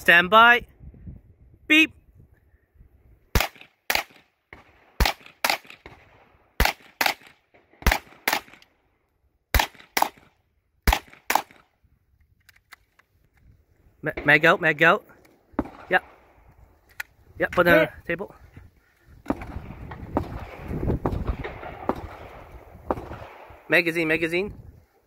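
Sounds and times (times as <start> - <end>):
rifle shots: 3.3 - 8.7, 9.5 - 11.7, 15.5 - 16.4, 19.2 - 23.8.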